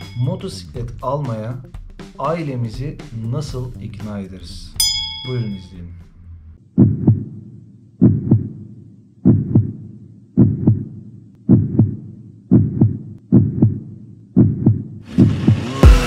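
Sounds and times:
music: 0:00.0 - 0:06.6, 0:15.1 - 0:16.0
heartbeat thumps: 0:06.8 - 0:16.0.

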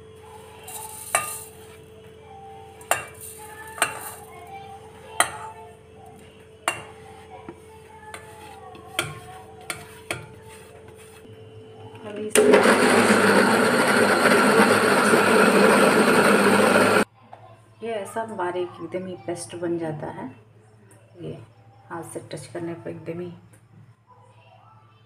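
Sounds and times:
faint hum: 0:00.0 - 0:12.4.

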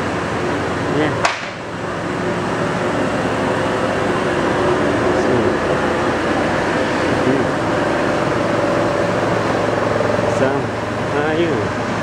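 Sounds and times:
foam-cutting machinery running: 0:00.0 - 0:12.0.

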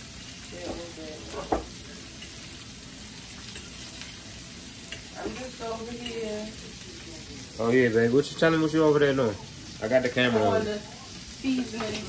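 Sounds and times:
sausage sizzling in a frying pan: 0:00.0 - 0:12.0
fork clicking on pan: 0:04.9 - 0:05.1.

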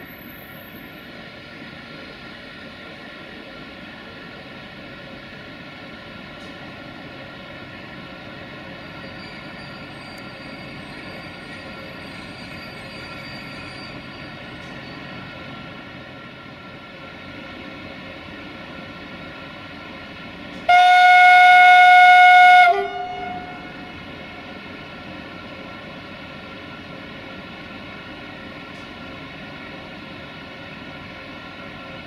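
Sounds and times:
locomotive running noise: 0:00.0 - 0:32.0
locomotive horn blast: 0:20.7 - 0:23.9.

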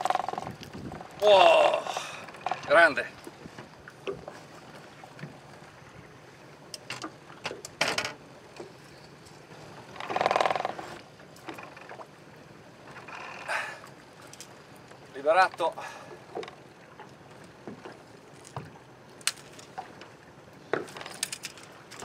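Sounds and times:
handling clicks and knocks: 0:20.7 - 0:22.0.

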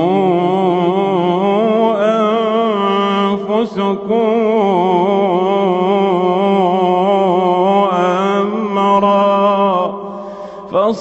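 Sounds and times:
man chanting melodically: 0:00.0 - 0:10.0, 0:10.6 - 0:11.0.

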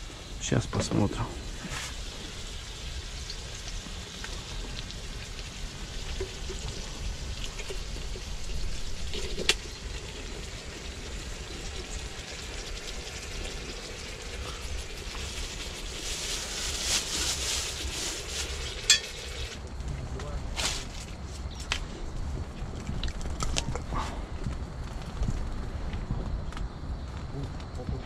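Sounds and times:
meat sizzling in a pot: 0:00.0 - 0:19.6
steady hiss: 0:00.0 - 0:22.0.

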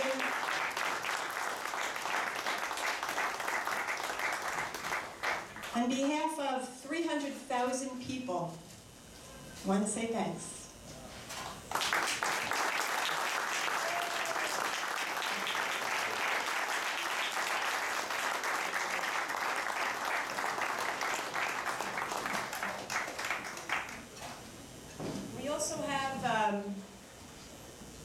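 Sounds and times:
audience applauding: 0:00.0 - 0:05.8, 0:11.7 - 0:24.1.

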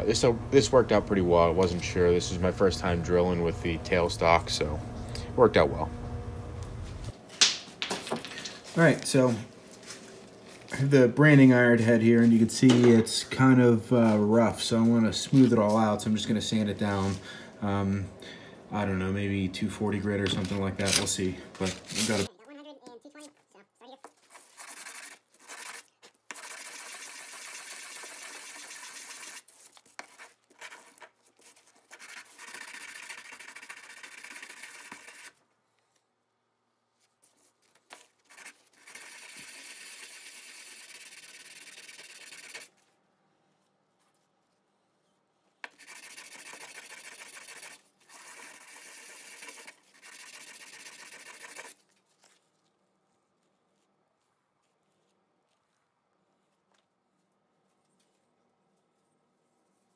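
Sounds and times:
metal rubbed on sandpaper: 0:21.6 - 0:22.3, 0:24.2 - 0:35.4, 0:38.2 - 0:42.7, 0:45.7 - 0:51.8.

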